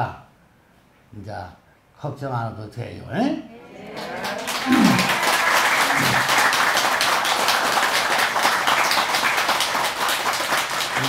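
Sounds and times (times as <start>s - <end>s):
crowd applauding: 3.8s - 11.0s.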